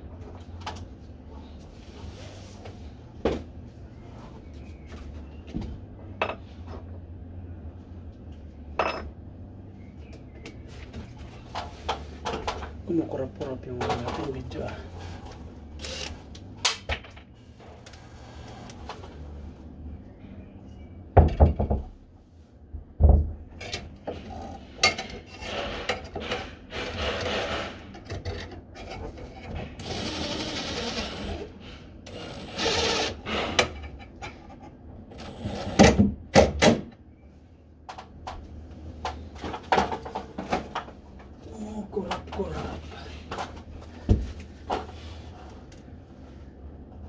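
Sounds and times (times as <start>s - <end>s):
cordless drill grinding into wood: 15.8s - 16.2s, 29.8s - 31.5s, 32.1s - 33.6s, 35.1s - 35.9s.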